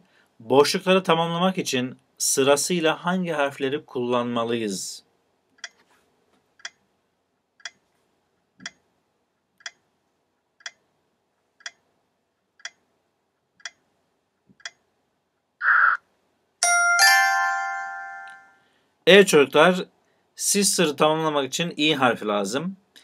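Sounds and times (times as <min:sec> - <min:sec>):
clock ticking: 0:05.6 - 0:05.8, 0:06.6 - 0:06.8, 0:07.6 - 0:07.9, 0:08.6 - 0:08.9, 0:09.5 - 0:09.9, 0:10.5 - 0:13.9, 0:14.6 - 0:14.9
bright ringing chime: 0:16.6 - 0:18.7.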